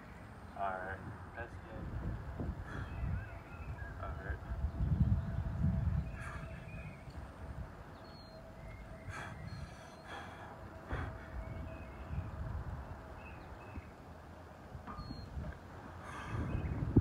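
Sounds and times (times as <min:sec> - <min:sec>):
low outdoor rumble: 0:00.0 - 0:17.0
man breathing forcefully: 0:02.5 - 0:03.2, 0:06.0 - 0:07.0, 0:09.0 - 0:11.8, 0:15.9 - 0:16.8.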